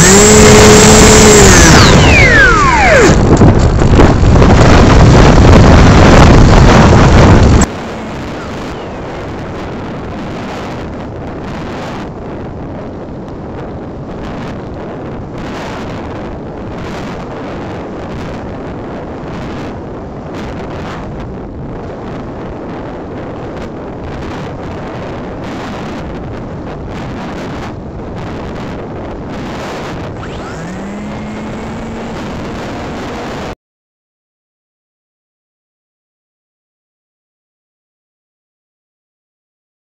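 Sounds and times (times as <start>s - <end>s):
airflow and propeller noise: 0.0s - 33.6s.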